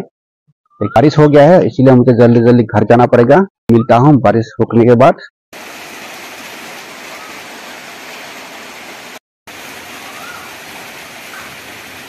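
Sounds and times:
rain falling on foliage: 5.6s - 12.0s.

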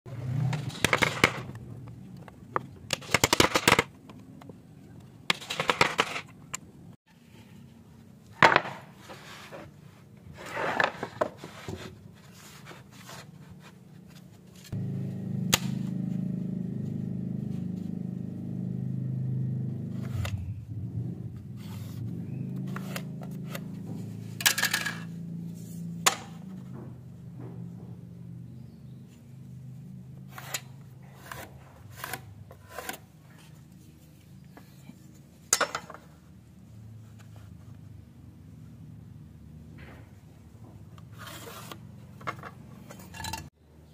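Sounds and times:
wooden blocks knocking and scraping: 0.4s - 6.7s, 8.3s - 14.8s, 30.2s - 36.2s, 39.8s - 43.5s.

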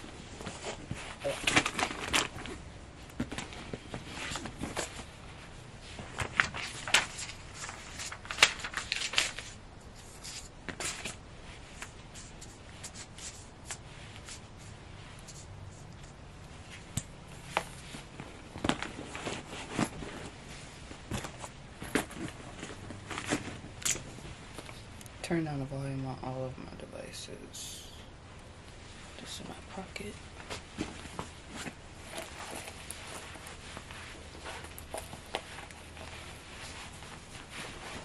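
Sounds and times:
objects being handled: 30.4s - 38.0s.

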